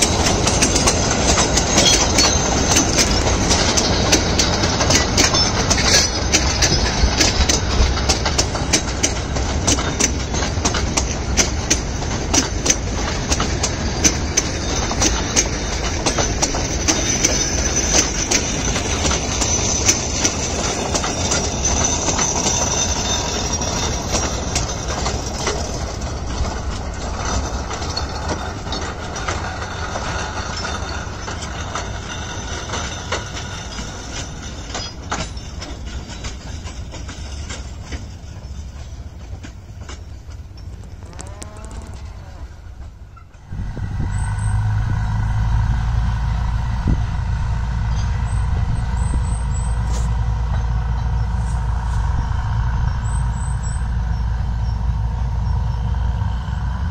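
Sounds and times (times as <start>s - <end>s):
wheels clicking and clattering: 0.0s - 45.0s
wagons rumbling on track: 0.0s - 56.9s.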